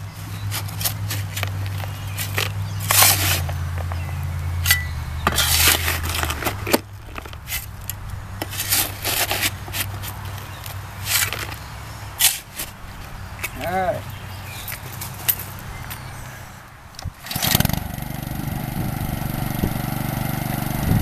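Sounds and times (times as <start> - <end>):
shovel scraping dirt: 0.2 - 12.8.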